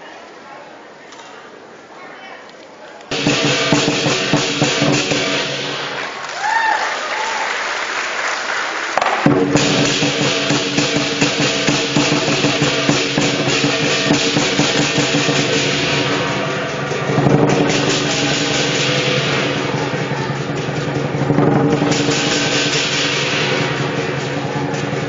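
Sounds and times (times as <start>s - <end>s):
big drum beaten fast: 3.1s - 7.0s, 9.0s - 25.0s
crashing cymbals: 3.1s - 7.5s, 9.1s - 25.0s.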